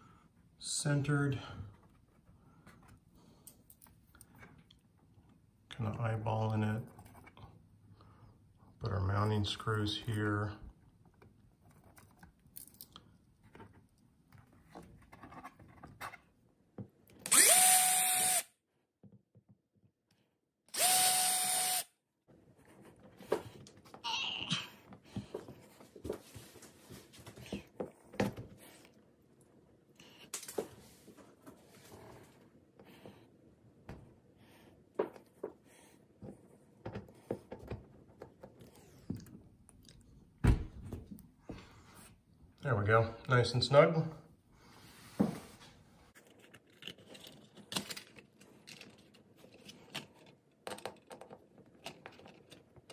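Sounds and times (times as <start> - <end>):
power drill whining: 17.3 - 18.5, 20.7 - 21.9.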